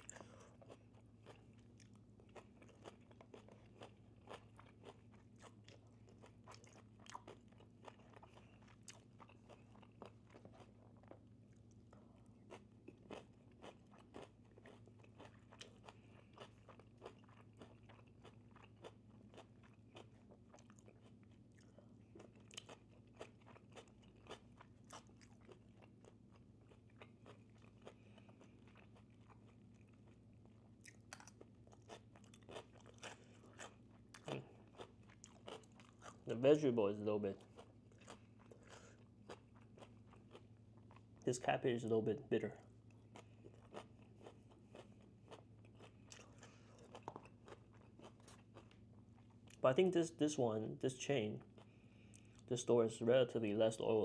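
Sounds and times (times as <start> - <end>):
chewing and crunching food: 0.0 - 49.9, 51.0 - 54.0.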